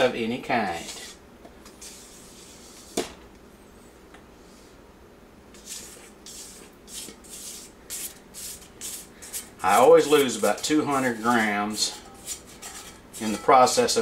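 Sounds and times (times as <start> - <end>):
spatula scraping bowl: 0.0 - 3.0, 5.5 - 14.0.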